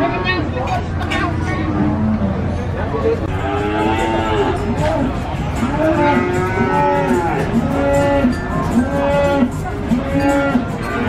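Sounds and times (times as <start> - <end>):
cattle mooing: 3.3 - 11.0.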